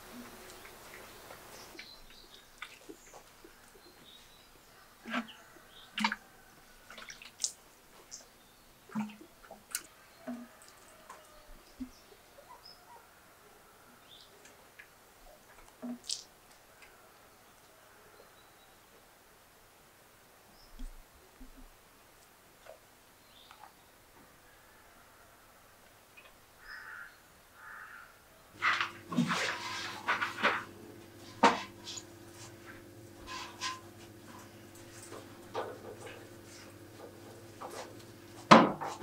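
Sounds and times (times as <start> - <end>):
water splashing on stone floor: 1.7 - 3.6, 6.0 - 8.2, 15.5 - 16.3.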